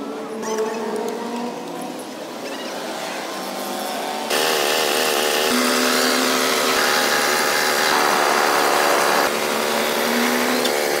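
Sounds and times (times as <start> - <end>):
air compressor running: 4.3 - 11.0
paint spray gun hissing: 4.3 - 11.0.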